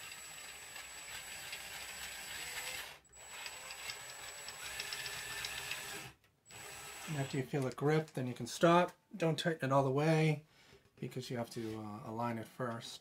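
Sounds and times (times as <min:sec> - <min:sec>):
cordless drill driving screw: 0:00.0 - 0:07.4.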